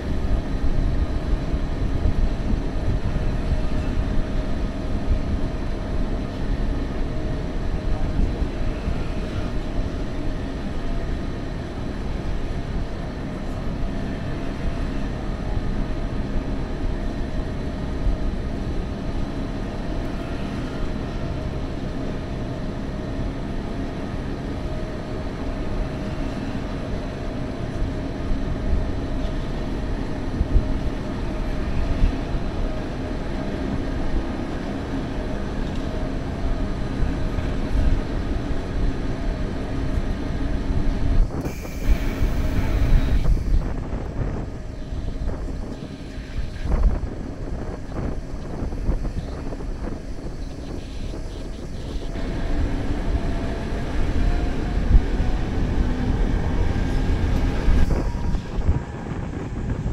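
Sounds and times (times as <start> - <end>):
faint steady whine: 0.0 - 55.2
train wheels rumbling on rail: 0.0 - 59.9
wind on microphone: 25.4 - 59.9.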